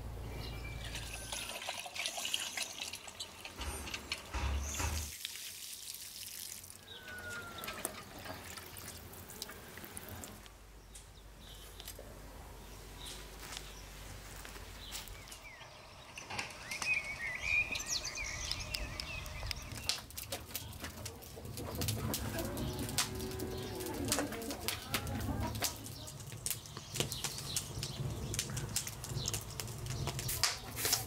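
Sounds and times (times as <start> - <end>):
birds chirping: 0.0 - 5.1, 6.8 - 30.8
low cooing call: 6.8 - 8.0
wood fire crackling: 12.9 - 31.0.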